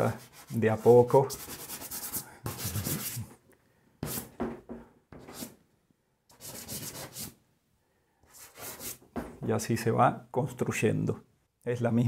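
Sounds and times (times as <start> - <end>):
pastel scraping across paper: 0.0 - 3.3, 6.3 - 7.4, 8.3 - 9.0.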